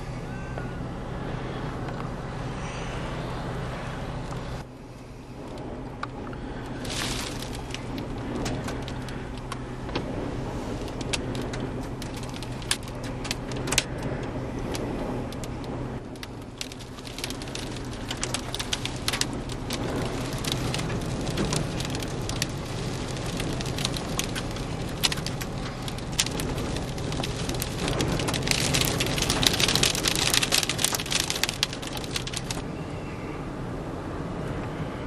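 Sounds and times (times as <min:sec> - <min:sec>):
low rumble of van: 0:00.0 - 0:35.0
sand pelting a vehicle: 0:06.5 - 0:13.7, 0:15.3 - 0:32.6.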